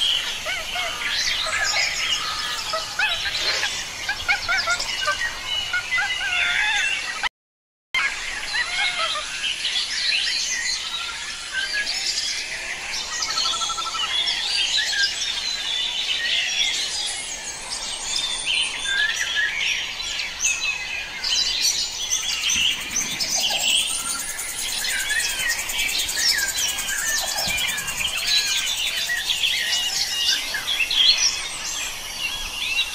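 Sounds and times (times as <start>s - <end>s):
birds chirping and whistling: 0.0s - 7.2s, 8.0s - 32.9s
rapid bird trill: 21.4s - 31.5s.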